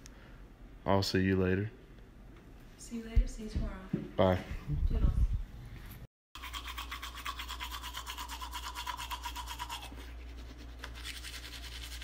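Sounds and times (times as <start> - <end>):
toothbrush scrubbing teeth: 6.4 - 12.0.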